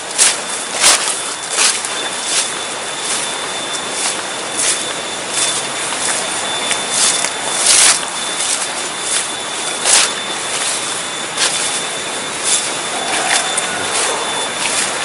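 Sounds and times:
rustling through undergrowth: 0.0 - 15.0.

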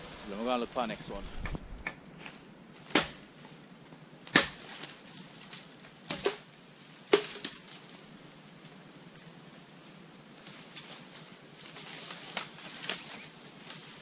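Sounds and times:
machete chopping bamboo: 2.9 - 3.3, 4.3 - 4.9, 6.1 - 6.5, 7.1 - 7.6.

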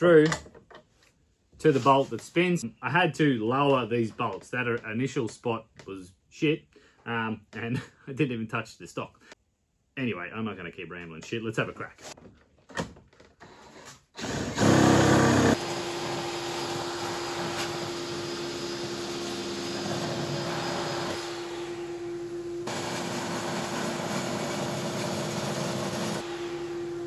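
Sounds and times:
saw blade cutting wood: 14.2 - 21.8, 22.6 - 26.8
table saw running: 14.2 - 27.0.

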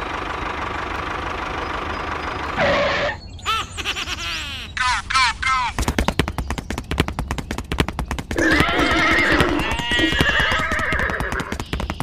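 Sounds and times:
rapid even clicking: 5.7 - 12.0
horse neighing: 8.4 - 11.6.

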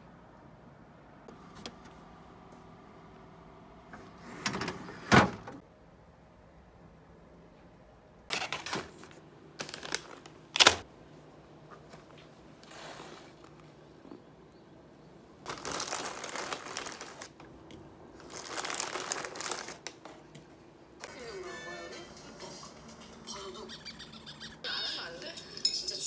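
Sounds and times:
plastic bag crinkling: 9.6 - 10.8, 15.4 - 17.4, 18.2 - 20.1.

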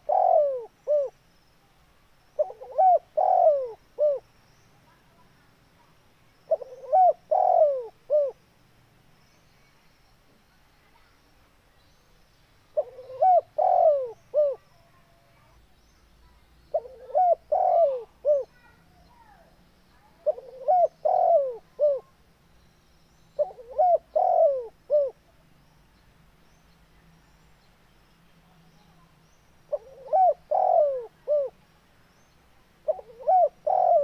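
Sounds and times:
dove cooing: 0.0 - 1.2, 2.4 - 4.2, 6.5 - 8.4, 12.8 - 14.6, 16.7 - 18.7, 20.2 - 22.1, 23.4 - 25.2, 29.7 - 31.6, 32.8 - 34.0.

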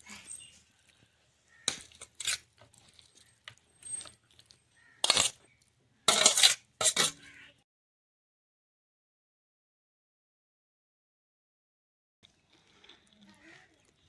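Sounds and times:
metal spoon scraping steel bowl: 1.6 - 3.2, 3.8 - 5.4, 6.1 - 7.4.

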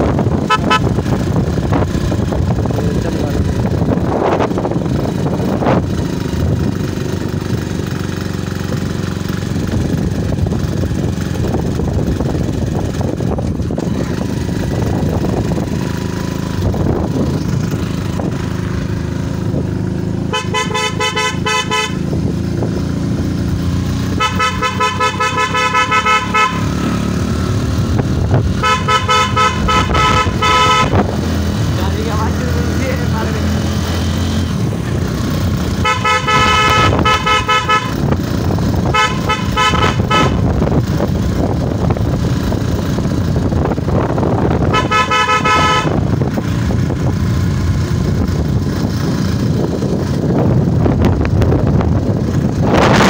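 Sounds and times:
motorcycle running along road: 0.0 - 53.0
fluttering horn blasts: 0.4 - 1.0, 20.3 - 22.2, 24.1 - 26.9, 28.6 - 31.1, 35.8 - 38.1, 38.8 - 40.7, 44.6 - 46.2.

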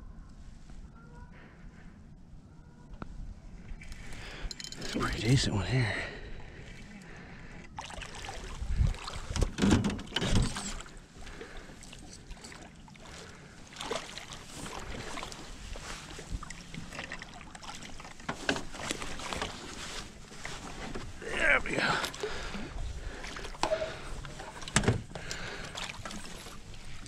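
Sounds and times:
fish splashing: 7.7 - 9.4, 11.3 - 18.3, 22.1 - 27.0.

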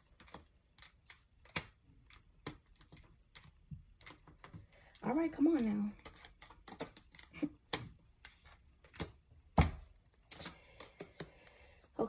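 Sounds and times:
cards shuffling: 5.9 - 11.7.

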